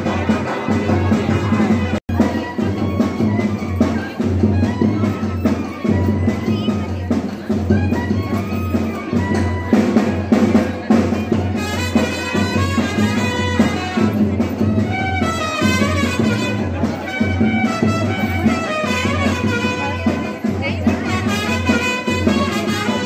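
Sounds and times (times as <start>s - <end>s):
melody over drums: 0.0s - 23.0s.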